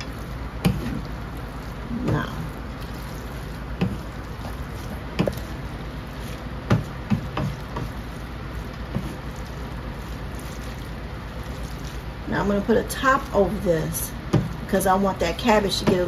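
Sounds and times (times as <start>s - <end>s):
spatula knocking and scraping wok: 0.0s - 1.2s, 3.3s - 9.4s
low background hum: 0.0s - 16.0s.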